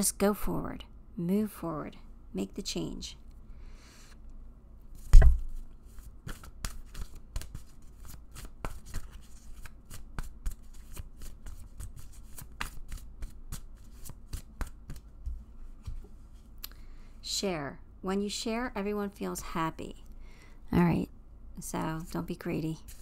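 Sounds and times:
cards being shuffled: 5.0s - 15.1s, 22.8s - 23.0s
loud thump: 5.1s - 5.5s.

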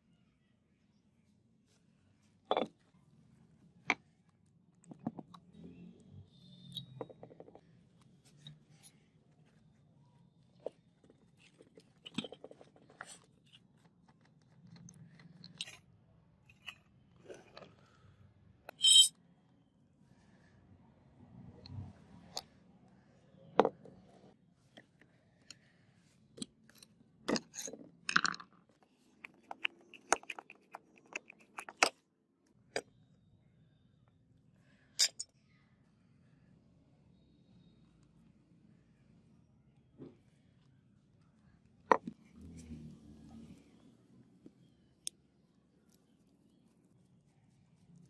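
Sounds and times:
metal clicks knocks and scrapes: 29.2s - 32.0s.

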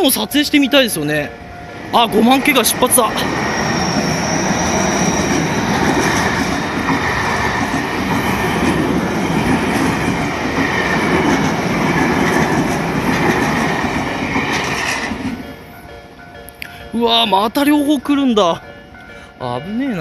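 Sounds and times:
train wheels clattering over rails: 1.7s - 15.7s
faint high wheel squeal: 3.3s - 5.7s.

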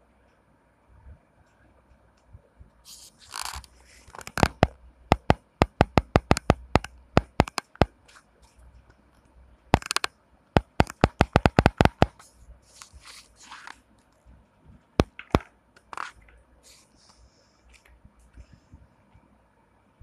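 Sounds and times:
rapid sharp taps: 4.4s - 8.0s, 9.7s - 12.3s.

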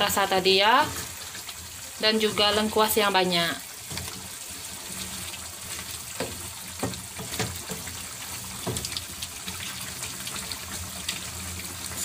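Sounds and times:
spatula scraping and knocking wok: 0.0s - 3.0s, 3.7s - 9.0s
gravy bubbling and sizzling: 0.0s - 12.0s.

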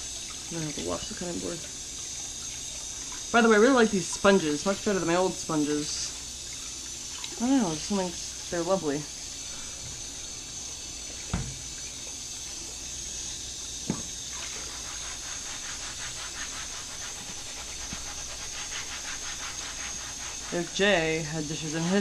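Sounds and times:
sponge scrubbing: 3.4s - 6.2s, 14.3s - 22.0s
tap running into steel sink: 11.2s - 11.8s, 13.8s - 14.2s
cutting board knocks: 11.3s - 11.6s, 13.9s - 14.1s.

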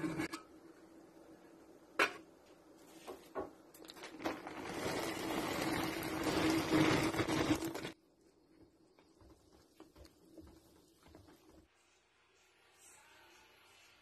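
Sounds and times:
tapioca pearls pouring into water: 3.9s - 8.0s.

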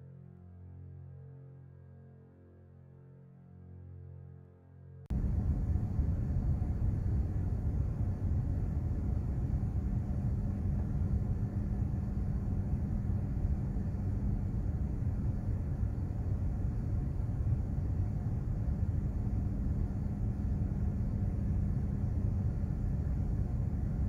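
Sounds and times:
ship rumble: 5.1s - 24.0s
steady hum: 5.1s - 24.0s
wind on deck: 5.1s - 24.0s.

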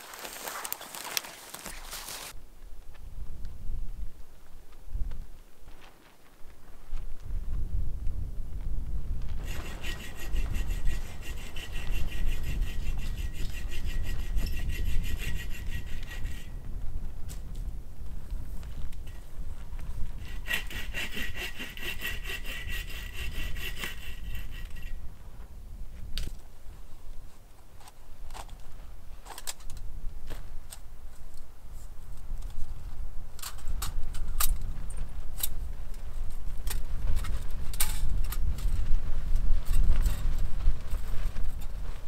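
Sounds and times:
bow saw cutting a branch: 0.0s - 2.3s, 9.4s - 16.6s, 20.2s - 25.0s.

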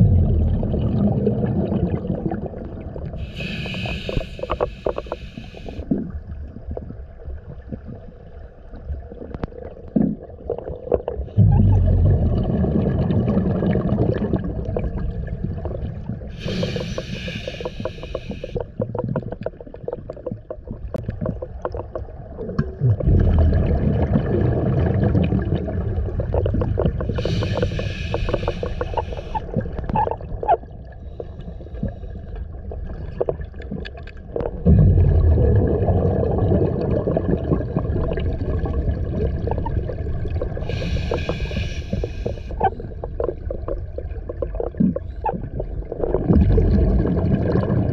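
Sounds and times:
exhaled bubbles rushing: 0.0s - 4.2s, 9.1s - 30.8s, 32.6s - 47.9s
regulator inhale hiss: 3.2s - 5.8s, 16.3s - 18.6s, 27.1s - 29.4s, 40.6s - 42.6s.

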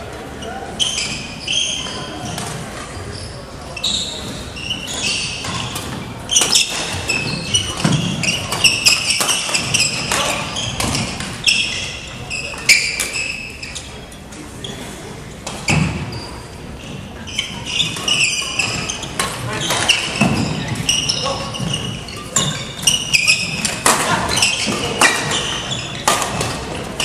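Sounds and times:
shoes squeaking on wooden floor: 0.3s - 15.0s, 15.6s - 27.0s
racquet hitting shuttlecock: 5.4s - 11.4s, 21.7s - 27.0s.

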